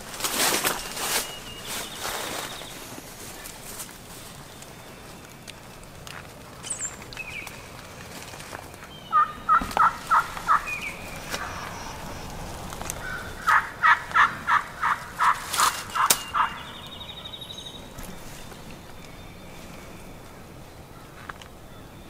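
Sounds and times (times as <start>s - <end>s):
turkey call hen yelps: 9.1s - 11.8s, 13.0s - 16.6s.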